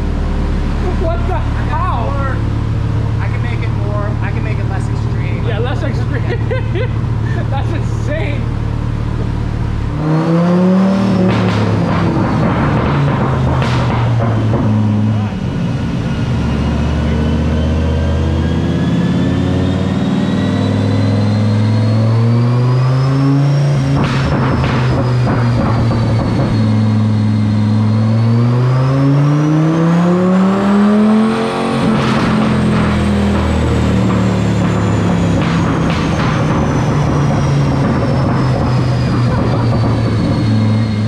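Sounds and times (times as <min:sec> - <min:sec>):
car engine revving: 0:00.0 - 0:41.0
exhaust pops: 0:06.9 - 0:15.7, 0:23.6 - 0:28.0, 0:30.5 - 0:41.0.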